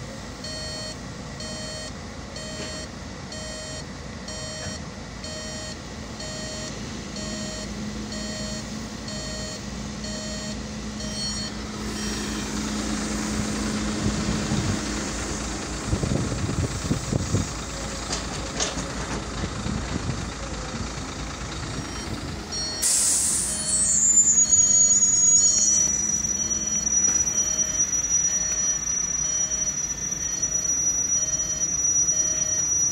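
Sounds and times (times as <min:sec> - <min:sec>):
truck engine running: 0:00.0 - 0:32.9
truck reversing alarm beeping: 0:00.3 - 0:32.9
steady high whistle: 0:05.5 - 0:15.5, 0:21.8 - 0:32.9
loud air hiss: 0:11.6 - 0:15.5, 0:22.7 - 0:27.3
low engine thumps: 0:13.2 - 0:22.6.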